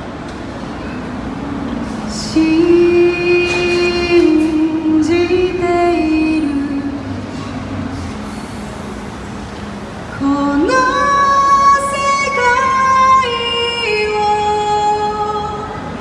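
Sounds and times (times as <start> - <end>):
woman singing into a microphone: 1.8 - 8.0, 10.2 - 16.0.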